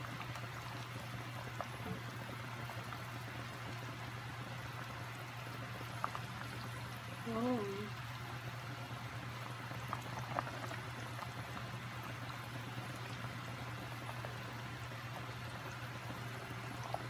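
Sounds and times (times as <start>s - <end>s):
broth bubbling in a pot: 0.0s - 17.0s
steady low hum: 0.0s - 17.0s.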